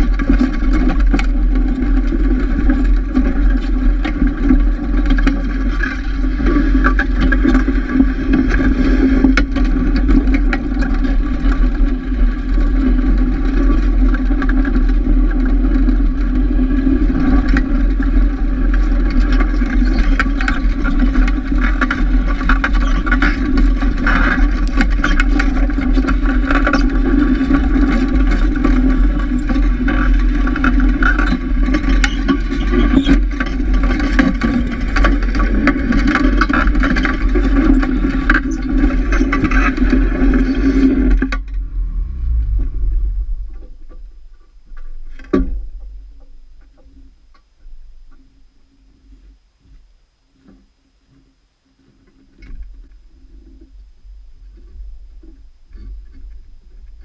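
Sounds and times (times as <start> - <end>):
snowmobile engine running: 37.2 - 44.6.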